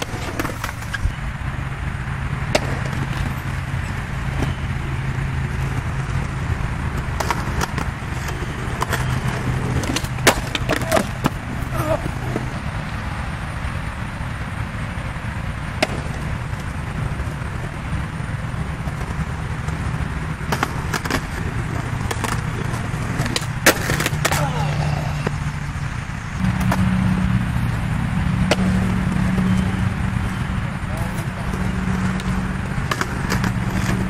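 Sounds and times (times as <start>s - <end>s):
skateboard clacking on ground: 0.0s - 1.2s, 2.4s - 4.8s, 5.4s - 12.6s, 15.6s - 25.4s, 28.3s - 29.7s, 30.3s - 34.0s
skateboard wheels rolling on concrete: 0.0s - 34.0s.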